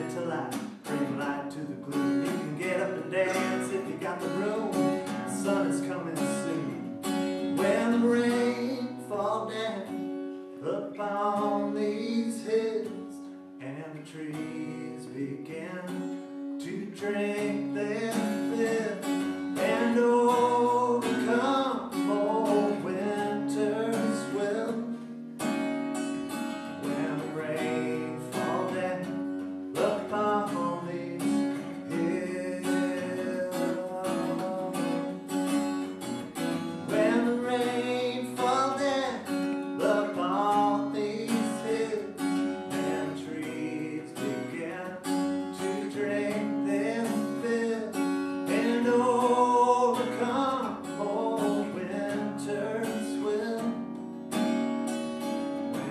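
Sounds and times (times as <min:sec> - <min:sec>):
man singing: 0:00.0 - 0:25.5, 0:26.7 - 0:35.8, 0:36.7 - 0:53.9, 0:55.6 - 0:55.9
acoustic guitar strumming: 0:00.0 - 0:55.9.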